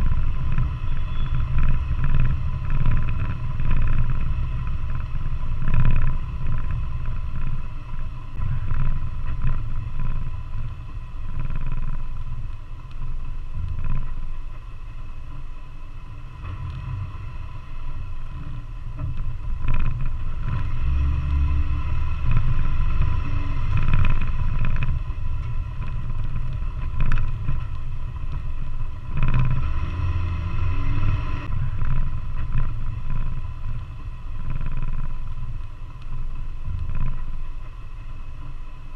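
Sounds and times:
off-road vehicle rumbling: 0.0 - 38.9.

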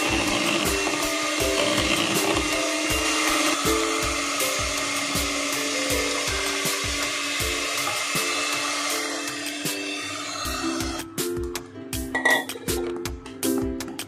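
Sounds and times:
electric hand mixer whirring: 0.0 - 11.2
background music with beat: 0.0 - 14.0.

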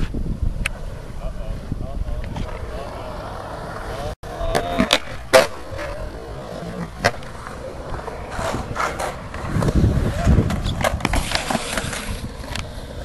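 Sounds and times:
skateboard wheels rolling on concrete: 0.0 - 13.0
skateboard clacking on landing: 4.3 - 6.0.

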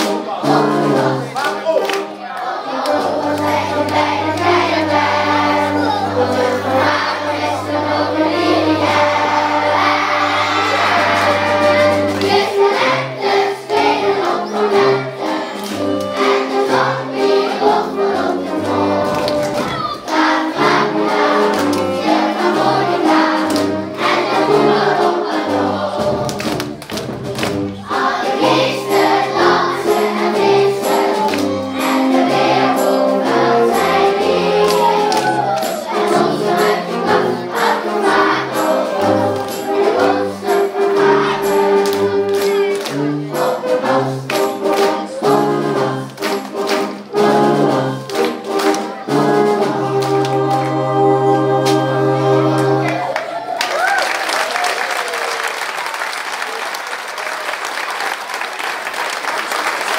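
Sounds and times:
brass band playing: 0.0 - 53.4
children's choir singing: 0.0 - 53.6
percussion beat: 2.8 - 7.8, 8.8 - 50.8.

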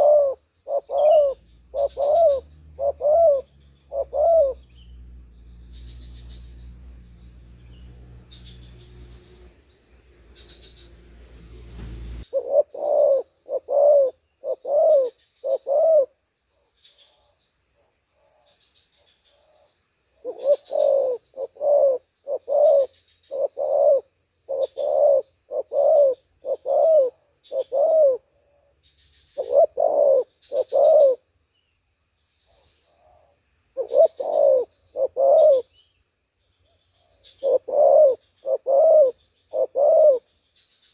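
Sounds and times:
dove cooing: 0.0 - 4.9, 12.3 - 16.2, 19.3 - 28.7, 29.3 - 31.3, 32.5 - 35.8, 37.0 - 40.3.

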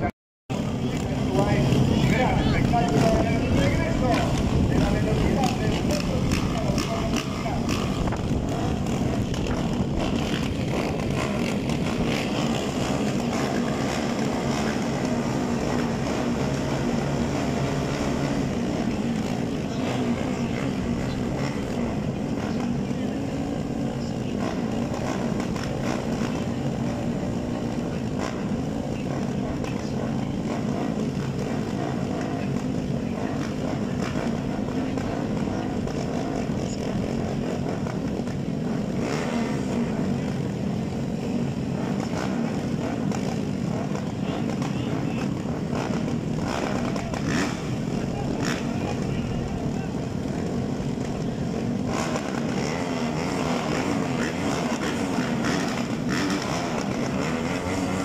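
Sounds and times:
motorcycle engines idling: 0.0 - 58.0.

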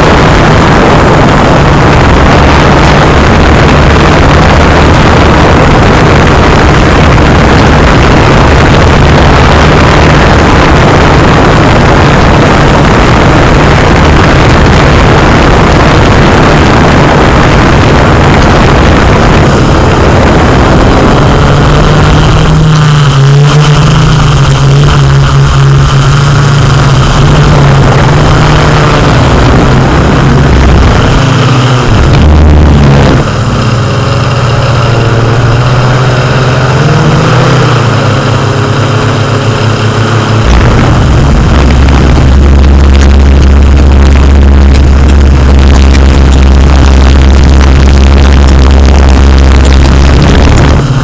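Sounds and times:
quadcopter motors and propellers humming: 0.0 - 51.0.

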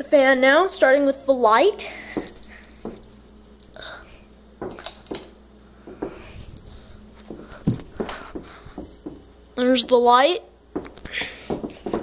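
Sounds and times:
clicks knocks and rustles of handling: 4.6 - 9.3, 10.7 - 12.0.

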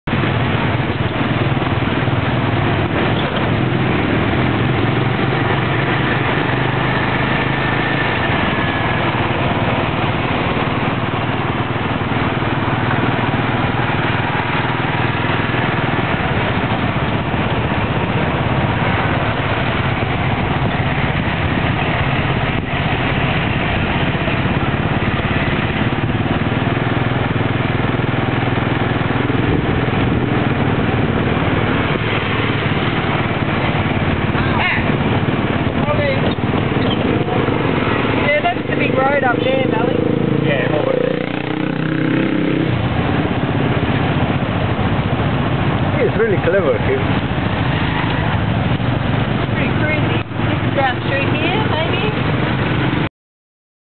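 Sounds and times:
motorcycle engine running: 0.0 - 53.1
road and wind noise: 0.0 - 53.1.

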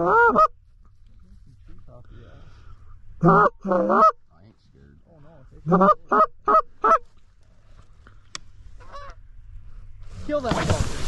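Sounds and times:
goose call honks: 0.0 - 0.5, 3.2 - 4.2, 5.6 - 7.1, 8.8 - 9.2.

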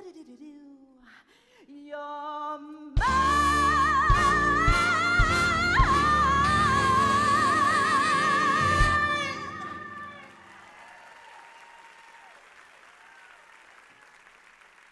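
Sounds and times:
woman singing with vibrato: 0.0 - 10.4
live band playing: 3.0 - 10.4
audience applauding: 8.2 - 14.9.

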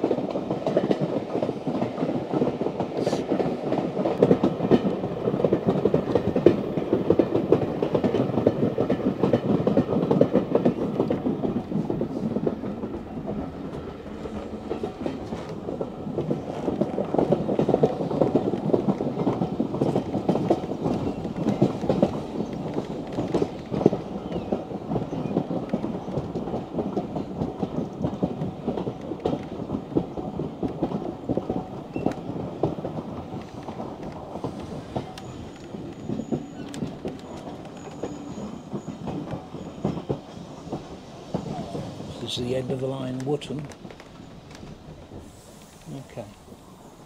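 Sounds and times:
train rumble: 0.0 - 47.0
train wheels clattering on rails: 0.0 - 47.0
faint high squeal: 35.1 - 40.5.

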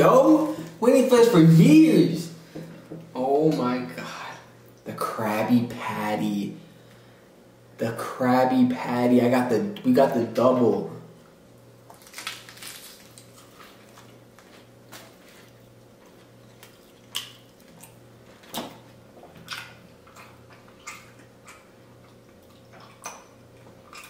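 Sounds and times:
faint steady hum: 0.0 - 24.0
people chewing: 11.9 - 24.0
wet mouth clicks and smacks: 16.6 - 23.3.

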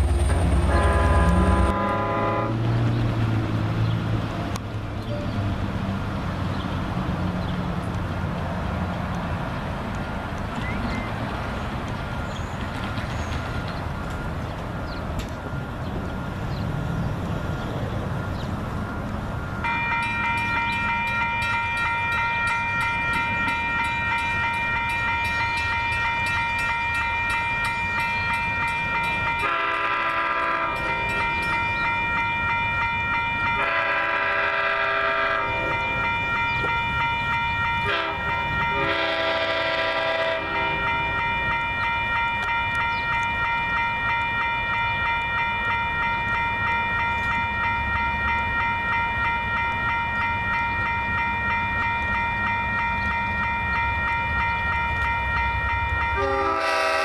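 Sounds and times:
crossing warning bell ringing: 0.0 - 3.5, 4.9 - 57.0
train air horn blasts: 0.3 - 2.6, 28.6 - 31.6, 32.4 - 42.8, 56.1 - 57.0.

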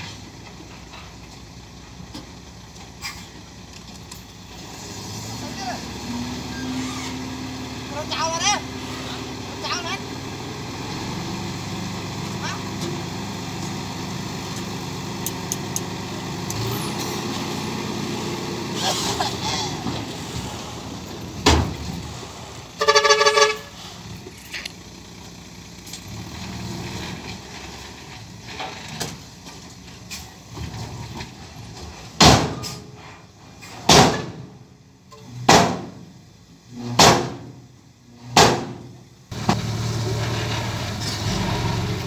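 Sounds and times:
truck engine running: 0.0 - 42.0
pulsing horn toot: 22.8 - 23.8
loud sharp bangs: 33.8 - 34.6, 35.4 - 36.1, 36.9 - 37.6, 38.3 - 39.0.

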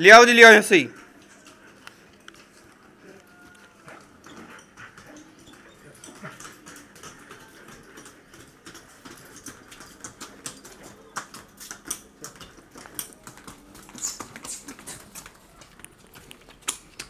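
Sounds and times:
hooves clicking on brick paving: 0.1 - 17.0
footsteps: 0.6 - 17.0.

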